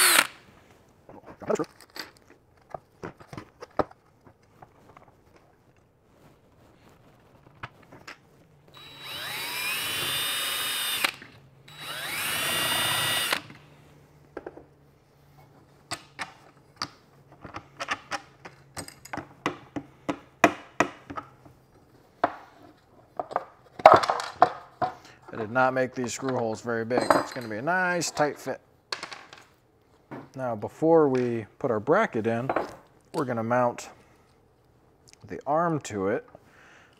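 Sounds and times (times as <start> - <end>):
cordless drill drilling plastic: 0.0 - 0.3, 8.7 - 13.6
plastic parts clicking and knocking: 1.2 - 5.5, 23.1 - 25.4.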